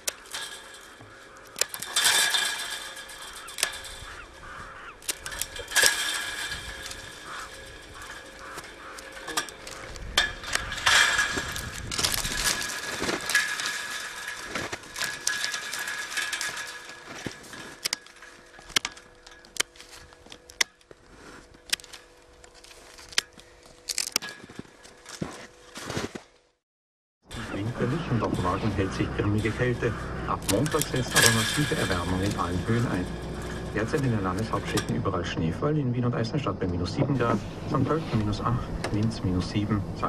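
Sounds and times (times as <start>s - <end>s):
pruning shears snipping: 0.0s - 13.8s, 27.4s - 35.2s
wood crackling and snapping: 0.0s - 26.4s, 27.3s - 35.2s
rustling: 0.0s - 26.5s, 27.3s - 35.2s.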